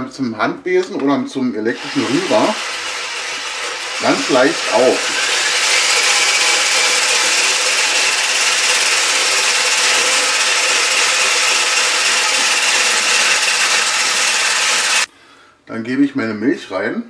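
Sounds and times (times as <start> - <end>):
electric hand mixer running: 1.8 - 15.1.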